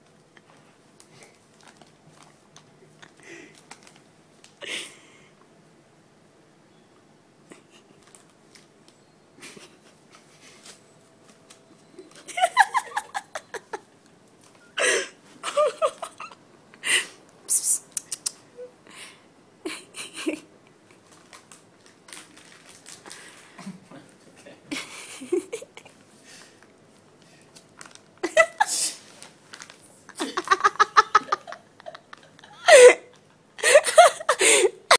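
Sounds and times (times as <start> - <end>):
plastic snack packet crinkling: 1.2 - 4.6, 8.0 - 8.7, 20.9 - 23.5, 27.2 - 30.8
person giggling and laughing: 12.0 - 13.9, 14.8 - 17.1, 19.6 - 20.5, 24.7 - 25.9, 28.2 - 28.8, 30.1 - 34.9.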